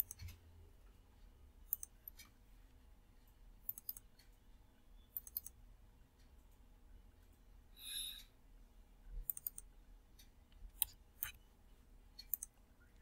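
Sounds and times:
computer mouse clicks: 0.0 - 0.4, 1.7 - 2.4, 3.6 - 4.4, 5.1 - 5.6, 9.2 - 11.4, 12.2 - 12.6.

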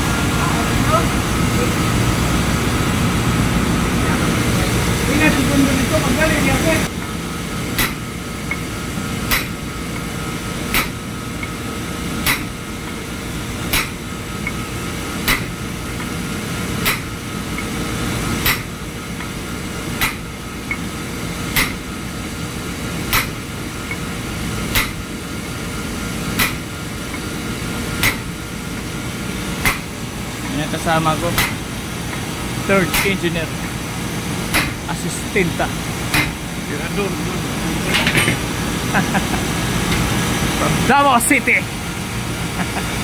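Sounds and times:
machinery hum: 0.0 - 43.0
metal-on-metal knocks: 37.9 - 38.4.

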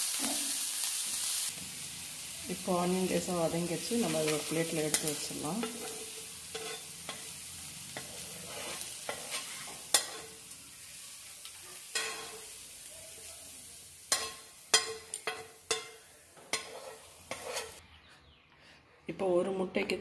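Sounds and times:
pan sizzling: 0.0 - 17.8
metal spatula scraping: 3.9 - 10.5, 11.4 - 12.6, 14.1 - 17.8.

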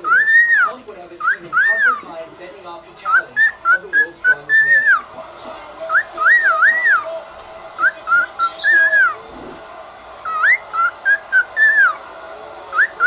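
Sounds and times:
cockatiel whistling: 0.0 - 2.1, 3.0 - 5.1, 5.9 - 7.1, 7.8 - 9.2, 10.2 - 12.0, 12.7 - 13.0.

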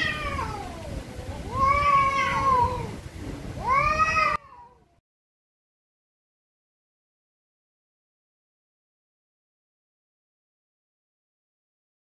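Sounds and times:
cats yowling: 0.0 - 2.9, 3.6 - 4.8.

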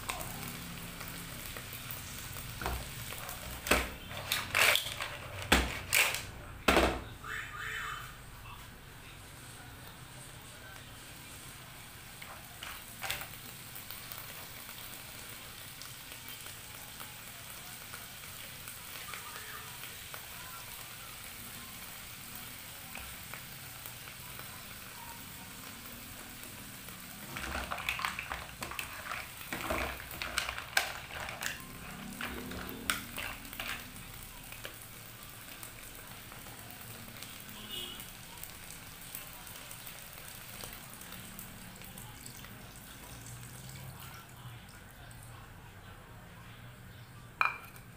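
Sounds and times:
food sizzling in a frying pan: 0.0 - 47.9
shells and utensil clattering on pan: 2.6 - 7.0, 12.2 - 13.4, 27.2 - 33.9.

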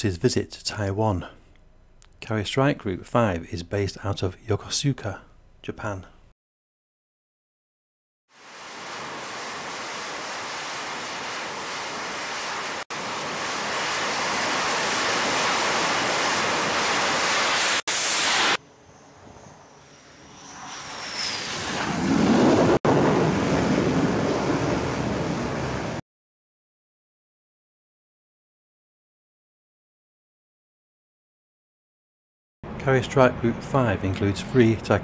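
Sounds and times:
jet engine rush: 8.3 - 26.0
falling high whine: 8.4 - 26.0.

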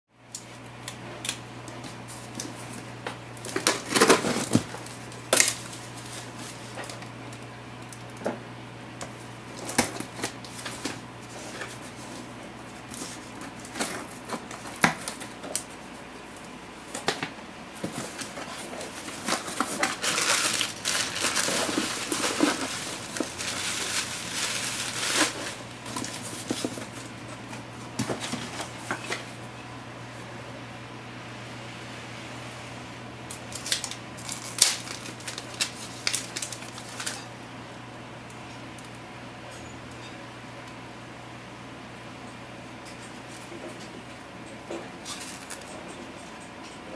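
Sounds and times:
steady low hum: 0.2 - 46.9
rustling and tearing packing: 1.2 - 7.1, 9.5 - 29.3, 33.5 - 37.3, 45.0 - 45.7.

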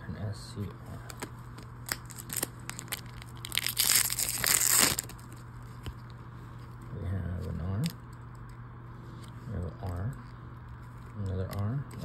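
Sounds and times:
foil wrapper crinkling and tearing: 1.0 - 5.5.

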